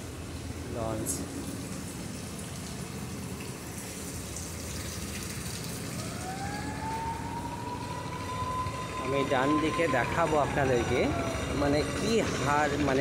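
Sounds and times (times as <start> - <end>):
boat siren rising: 5.7 - 13.0.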